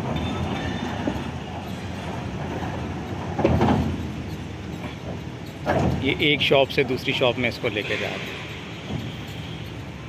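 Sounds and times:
traverser rumbling on rails: 0:00.0 - 0:10.0.

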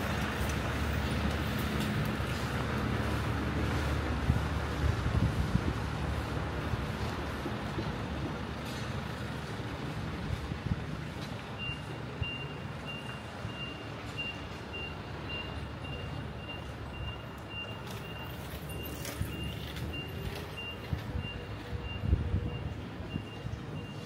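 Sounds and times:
low engine rumble: 0:00.0 - 0:24.0
street noise: 0:00.0 - 0:24.0
vehicle reversing alarm beeping: 0:06.1 - 0:24.0.

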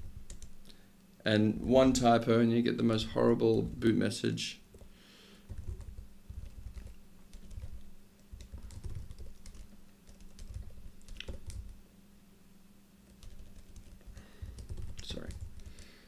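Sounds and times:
typing on computer keyboard: 0:00.0 - 0:00.6, 0:04.7 - 0:11.8, 0:13.1 - 0:15.9.

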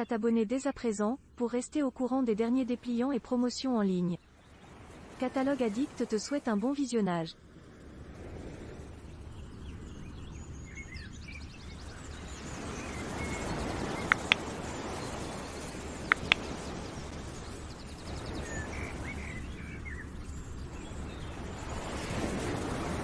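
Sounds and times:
steady rushing noise: 0:07.4 - 0:23.0
birds chirping: 0:08.9 - 0:22.6
double clicks: 0:14.0 - 0:14.5, 0:16.0 - 0:16.5.

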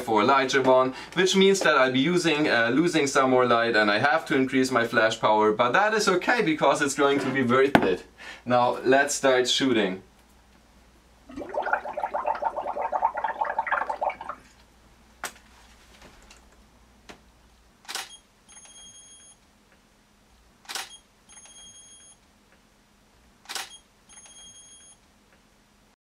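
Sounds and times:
blowing bubbles through a straw: 0:11.3 - 0:14.5
camera shutter release: 0:17.9 - 0:18.2, 0:20.7 - 0:21.5, 0:23.5 - 0:24.3.

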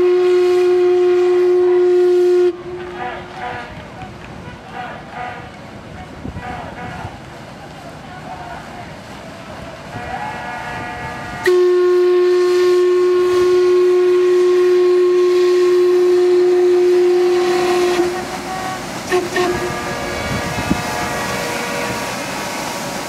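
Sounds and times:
steamer whistle blowing: 0:00.0 - 0:03.7, 0:09.9 - 0:23.0.

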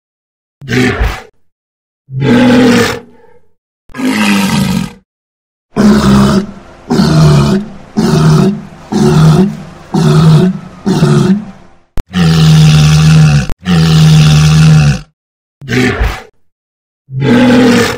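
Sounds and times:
walrus bellowing: 0:02.1 - 0:05.0, 0:05.7 - 0:16.2, 0:17.1 - 0:17.9.

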